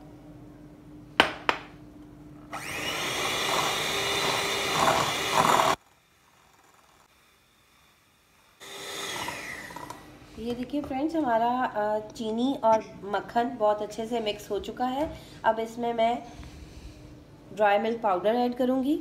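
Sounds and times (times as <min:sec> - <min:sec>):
electric hand mixer running: 0:02.5 - 0:05.8, 0:08.6 - 0:10.1.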